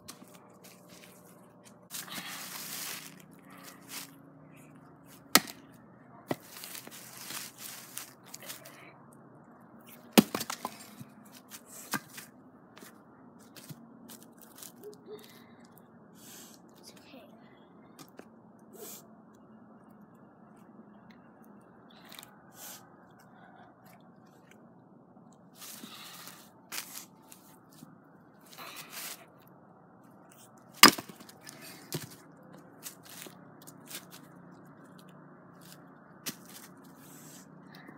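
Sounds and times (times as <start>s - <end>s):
rustling in dry leaves: 0.1s - 4.2s, 6.3s - 8.8s, 25.6s - 27.8s, 32.8s - 34.3s, 35.0s - 37.4s
axe striking log: 5.3s - 5.6s, 10.2s - 10.7s, 30.8s - 31.3s
wooden knocks of firewood: 30.8s - 31.3s.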